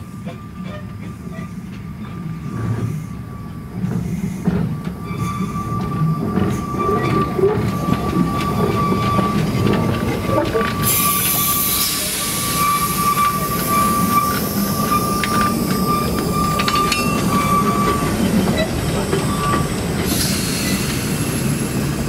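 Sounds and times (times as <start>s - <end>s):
steam train running rumble: 0.0s - 22.0s
high-pitched squeal: 5.0s - 21.5s
loud steam hiss: 10.8s - 15.1s, 19.9s - 22.0s.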